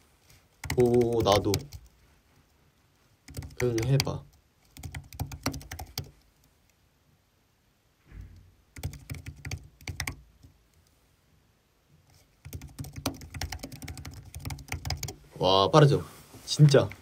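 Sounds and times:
rapid keyboard typing: 0.6s - 1.9s, 3.2s - 6.2s, 8.7s - 10.5s, 12.4s - 15.2s.

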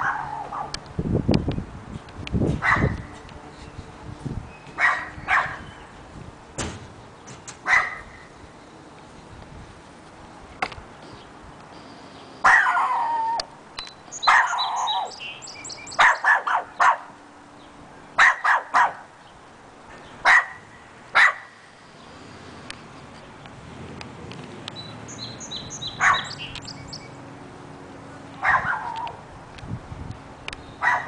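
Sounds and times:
small dog barking: 0.0s - 0.8s, 2.6s - 3.0s, 4.8s - 5.7s, 7.6s - 8.2s, 12.4s - 13.4s, 14.2s - 15.1s, 16.0s - 17.1s, 18.2s - 19.1s, 20.2s - 20.6s, 21.2s - 21.5s, 26.0s - 26.4s, 28.4s - 29.2s, 30.8s - 31.0s.

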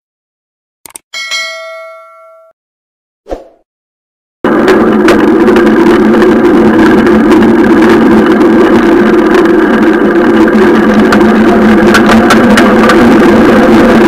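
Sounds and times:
sharp clicks: 0.9s - 1.1s, 11.9s - 13.0s.

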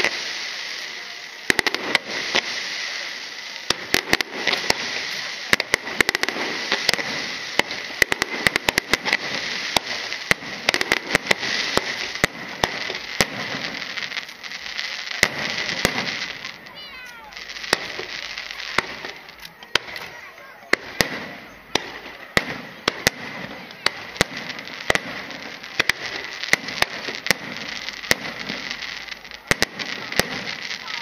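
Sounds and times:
fireworks crackling: 0.0s - 31.0s
firework shells bursting: 3.6s - 31.0s.

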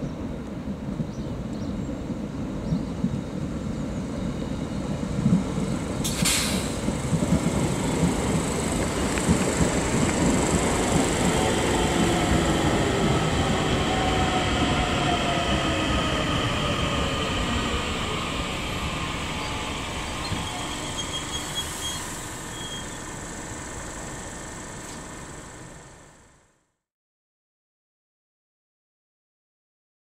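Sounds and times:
electric train braking: 6.0s - 26.3s
short high brake squeaks: 20.2s - 23.1s.

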